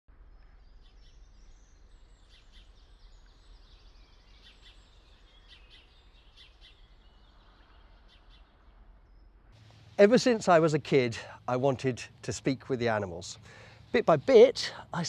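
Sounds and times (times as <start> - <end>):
small birds chirping: 0.2 - 15.0
low outdoor rumble: 7.0 - 15.0.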